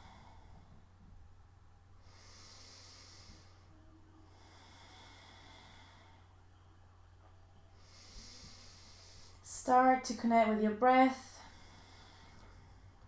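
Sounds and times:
woman breathing deeply: 0.0 - 1.1, 1.9 - 6.6, 7.6 - 9.5, 11.4 - 13.0
low steady hum: 0.0 - 13.0.

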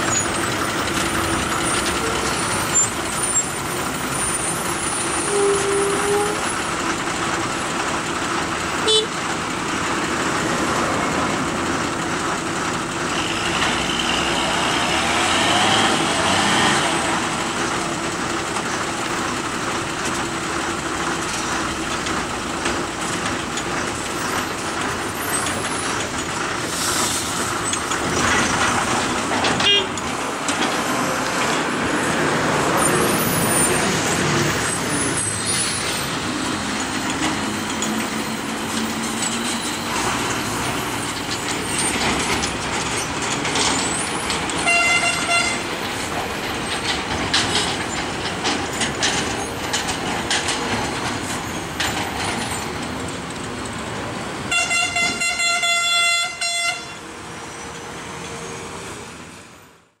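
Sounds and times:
truck diesel engines: 0.0 - 60.0
truck horn blasts: 5.2 - 6.6, 8.8 - 9.2, 29.6 - 30.0, 44.6 - 45.6, 54.5 - 57.0.

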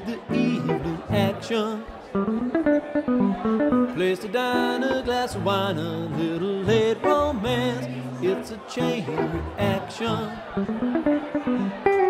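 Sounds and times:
man singing: 0.0 - 2.0, 3.9 - 10.7
guitar single notes: 0.0 - 12.0.

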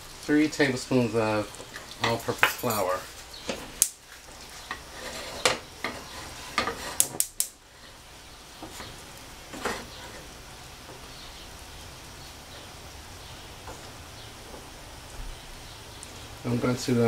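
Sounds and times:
butter sizzling in a skillet: 0.0 - 17.0.

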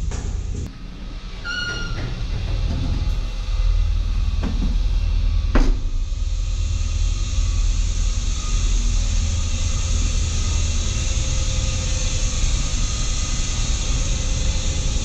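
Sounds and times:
ventilation equipment rumble: 0.0 - 15.0.

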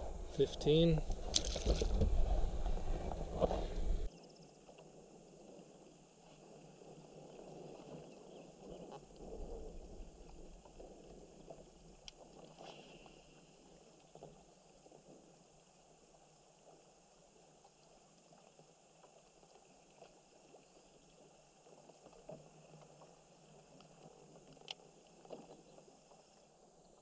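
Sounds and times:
water lapping against kayak hull: 1.0 - 27.0
small ticks: 8.7 - 26.5.

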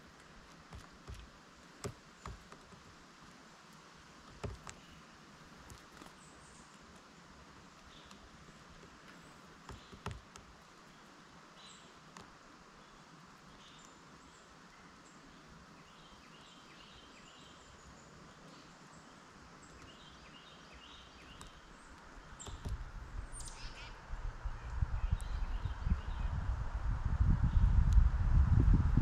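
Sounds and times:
small birds chirping: 0.0 - 26.4
wind buffeting microphone: 22.4 - 29.0.

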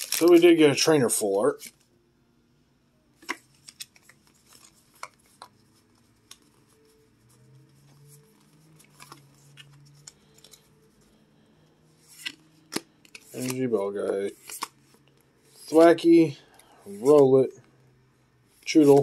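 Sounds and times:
cards snapping and sliding: 12.0 - 13.6, 14.4 - 14.8.

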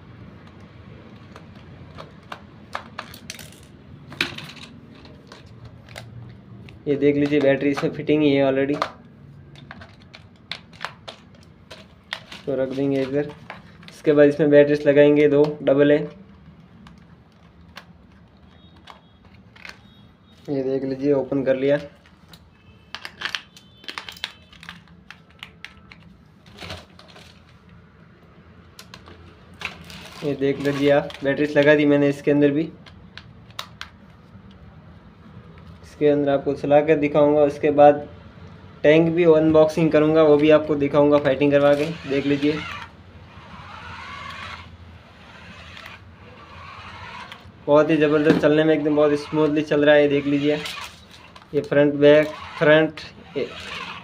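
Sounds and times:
screwdriver clicking and scraping: 0.4 - 6.2, 9.6 - 14.1, 40.2 - 54.0
plastic casing handled: 0.4 - 8.0, 8.7 - 14.1, 22.0 - 27.6
plastic clicks of battery compartment: 32.8 - 34.0.

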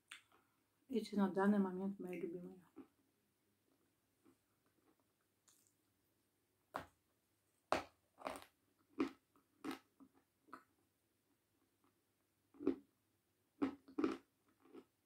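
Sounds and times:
person chewing crunchy food: 7.7 - 10.7, 13.6 - 15.0.

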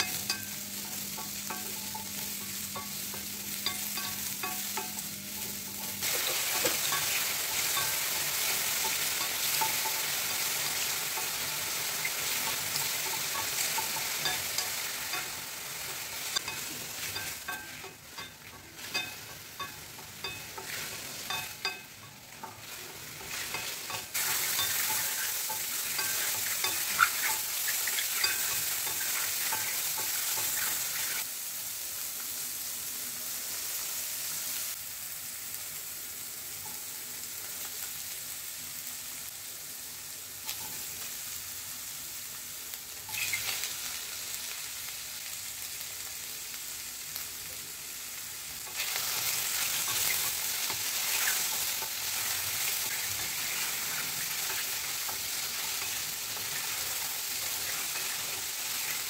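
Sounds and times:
vegetables clattering into pan: 0.0 - 31.2
mushrooms sizzling in oil: 0.0 - 59.0
spatula scraping pan: 12.0 - 31.2, 48.7 - 59.0.

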